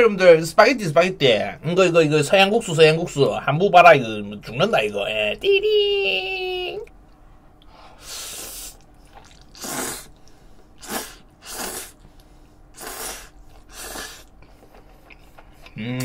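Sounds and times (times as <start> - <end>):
spaghetti slurping: 8.0 - 10.2, 10.8 - 15.7.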